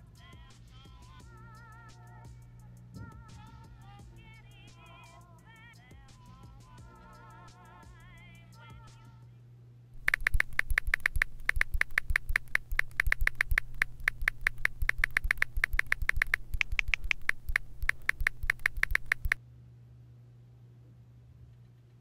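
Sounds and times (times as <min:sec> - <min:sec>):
phone keyboard clicks: 0:10.0 - 0:19.4.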